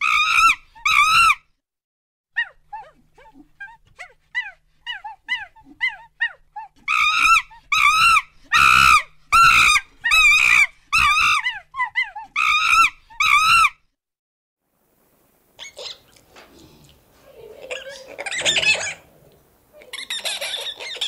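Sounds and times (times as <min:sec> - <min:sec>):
monkey screaming: 0:00.0 - 0:01.4, 0:02.4 - 0:13.8, 0:15.6 - 0:16.1, 0:17.6 - 0:19.1, 0:19.9 - 0:21.0
monkey chirps: 0:04.4 - 0:13.8, 0:15.6 - 0:16.2, 0:19.8 - 0:21.0.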